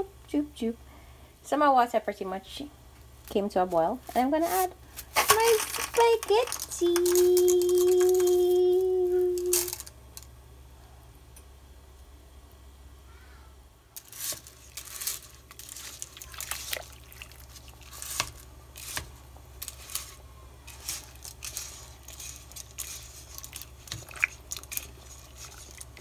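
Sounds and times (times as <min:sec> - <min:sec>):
dry spaghetti crackling in pot: 0:03.8 - 0:10.4, 0:14.0 - 0:26.0.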